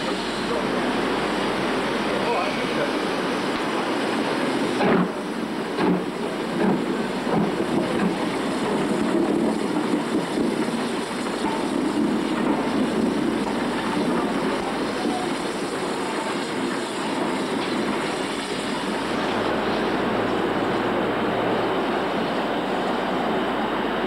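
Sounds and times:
steam locomotive rumbling and hissing: 0:00.0 - 0:24.0.

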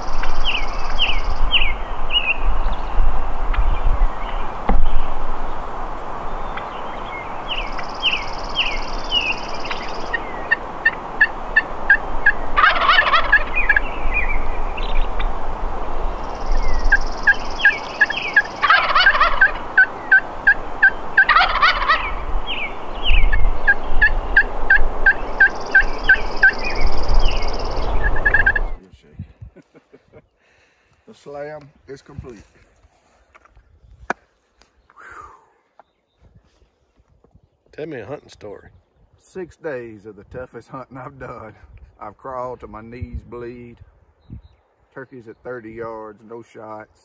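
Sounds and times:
songbirds chirping: 0:00.0 - 0:47.0
turkey gobbling: 0:07.5 - 0:15.3, 0:16.4 - 0:28.8.

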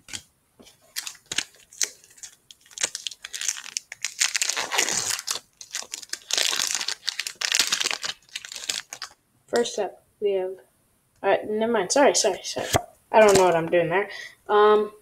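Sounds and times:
foil wrapper crinkling and tearing: 0:00.9 - 0:09.2.

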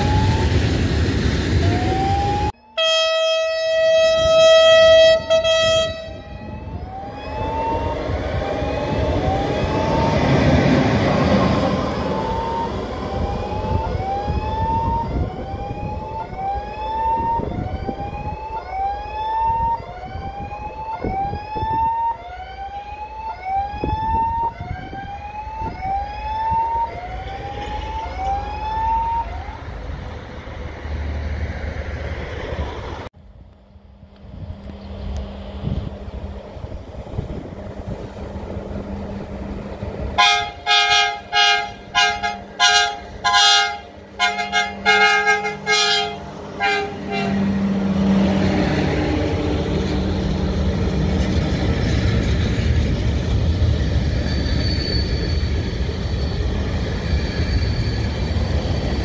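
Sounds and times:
train rumbling: 0:00.0 - 0:19.3, 0:23.1 - 0:59.0
locomotive horn blast: 0:02.7 - 0:06.6, 0:40.2 - 0:47.9.

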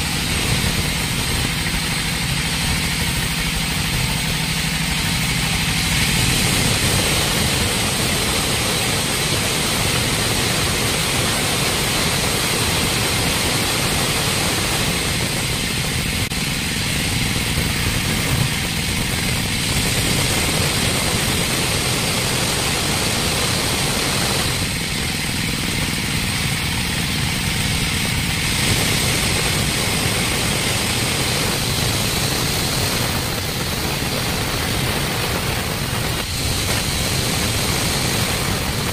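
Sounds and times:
band saw mill cutting timber: 0:00.0 - 0:38.9.

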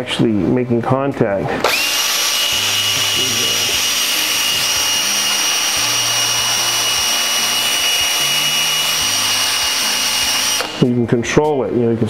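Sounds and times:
cordless drill whining: 0:01.6 - 0:10.9.

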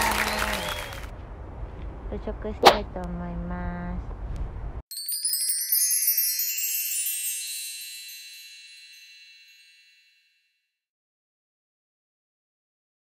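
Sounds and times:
wind rumble on microphone: 0:01.0 - 0:04.8
wind chimes tinkling: 0:04.9 - 0:10.6.

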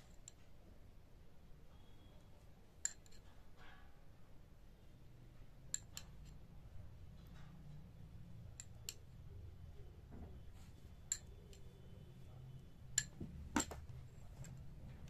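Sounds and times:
faint low hum: 0:00.0 - 0:15.0
metal spoon clinking against dishes: 0:02.8 - 0:04.0, 0:05.6 - 0:06.4, 0:11.0 - 0:11.7.

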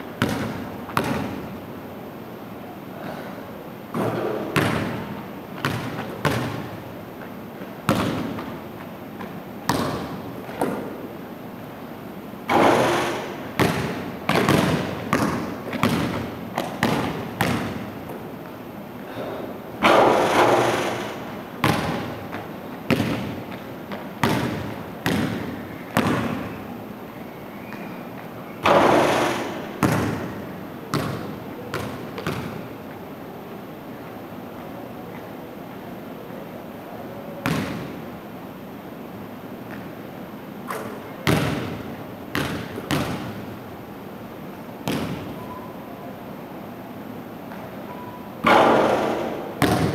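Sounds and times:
basketball bouncing on hardwood floor: 0:00.2 - 0:01.4, 0:04.0 - 0:05.0, 0:05.6 - 0:06.7, 0:07.9 - 0:08.5, 0:09.2 - 0:10.8, 0:12.5 - 0:17.8, 0:21.6 - 0:26.4, 0:28.6 - 0:30.3, 0:30.9 - 0:32.6, 0:37.4 - 0:37.9, 0:40.7 - 0:43.4, 0:44.8 - 0:45.3, 0:48.4 - 0:49.9
loud ringing bangs: 0:12.5 - 0:13.5, 0:28.6 - 0:29.8, 0:48.4 - 0:49.6.

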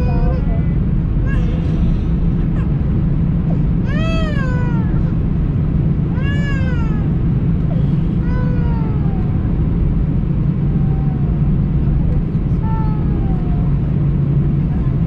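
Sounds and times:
aircraft cabin hum: 0:00.0 - 0:15.0.

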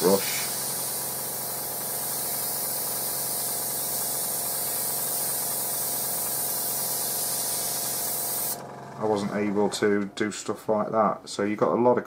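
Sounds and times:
airbrush hissing: 0:00.0 - 0:08.6.

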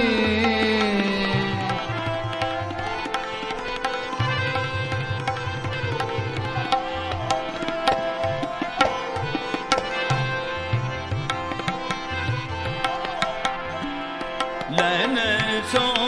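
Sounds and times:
gliding melodic instrument: 0:00.0 - 0:16.0
tabla drumming: 0:00.0 - 0:16.0.

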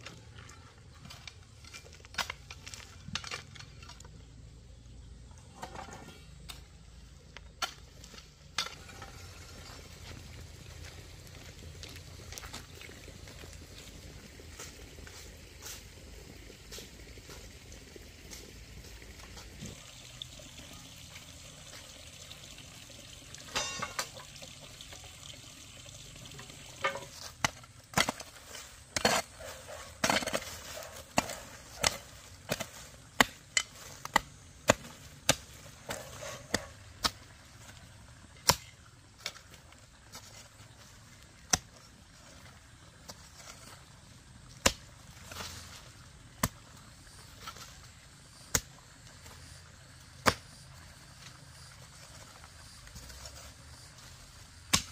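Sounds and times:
hoe chopping into dry earth: 0:54.6 - 0:54.9.

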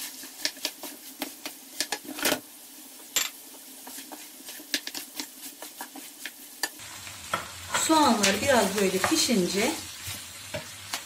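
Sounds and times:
frying hiss: 0:00.0 - 0:11.0
wooden spoon knocking on pan: 0:09.0 - 0:09.3.

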